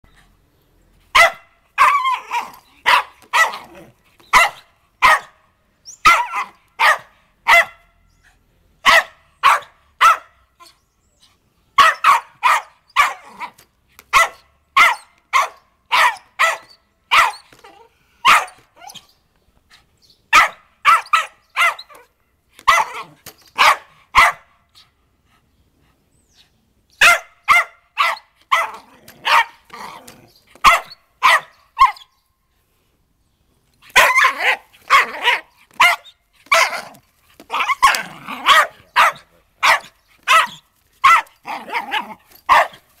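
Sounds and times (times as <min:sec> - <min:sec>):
puppy barking sharply: 0:01.2 - 0:03.7, 0:04.4 - 0:05.4, 0:06.0 - 0:07.9, 0:08.8 - 0:10.4, 0:11.8 - 0:13.3, 0:14.1 - 0:17.5, 0:18.2 - 0:18.6, 0:20.3 - 0:22.0, 0:22.7 - 0:24.5, 0:27.0 - 0:29.6, 0:30.6 - 0:32.0, 0:34.0 - 0:36.9, 0:37.5 - 0:42.8.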